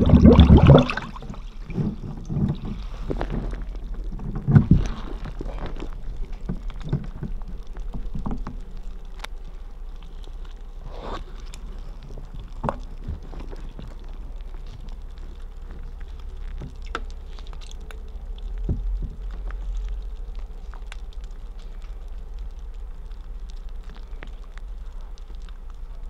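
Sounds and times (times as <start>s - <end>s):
underwater thump: 0.0s - 3.5s
underwater knocks and scrapes: 0.0s - 9.2s, 10.8s - 17.8s, 18.5s - 20.4s.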